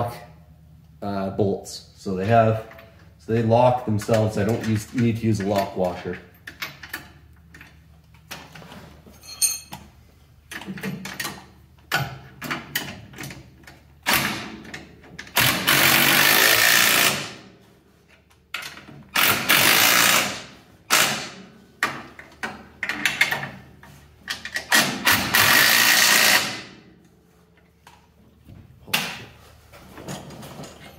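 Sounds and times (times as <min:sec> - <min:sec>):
metal tools clinking: 0:09.1 - 0:09.9
impact wrench hammering: 0:19.1 - 0:22.0, 0:24.5 - 0:26.7.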